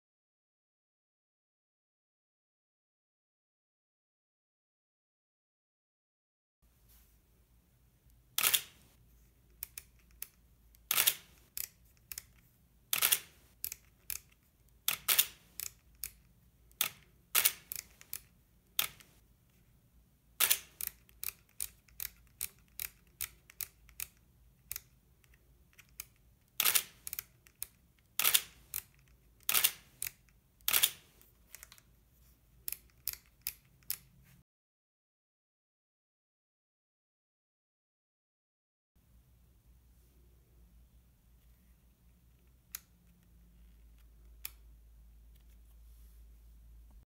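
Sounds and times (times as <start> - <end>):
camera dial clicks: 10.8 - 12.3.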